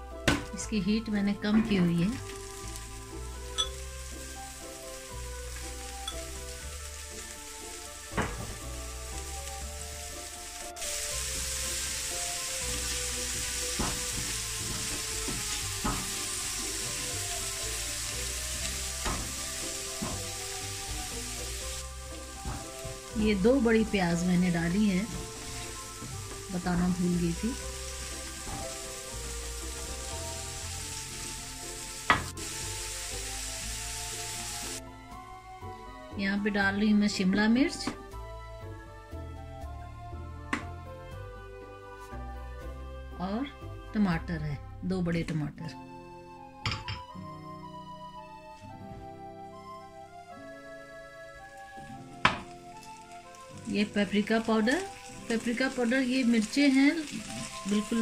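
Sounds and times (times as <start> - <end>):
onions sizzling in hot oil: 0.2 - 35.2, 50.8 - 58.0
wooden spatula stirring: 10.2 - 29.1
wooden spatula knocking on pan: 19.0 - 19.4, 32.1 - 32.3, 52.2 - 52.5.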